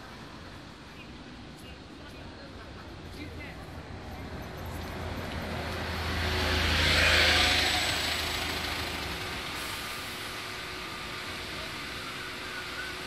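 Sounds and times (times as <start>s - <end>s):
vehicle passing by: 3.8s - 9.6s.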